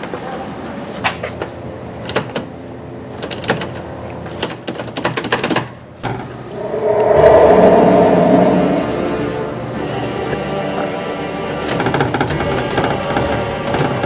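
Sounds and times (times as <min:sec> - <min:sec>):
eerie music: 0:06.5 - 0:10.6.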